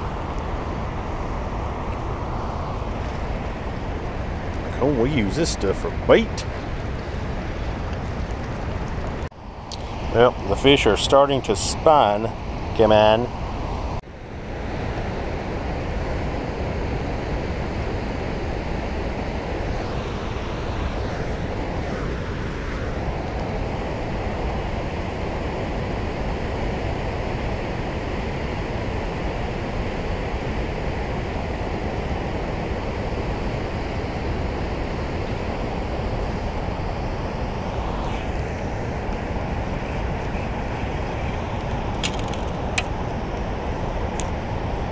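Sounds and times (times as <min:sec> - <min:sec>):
water churning below a dam: 0:00.0 - 0:44.9
fishing reel clicks: 0:41.9 - 0:42.9.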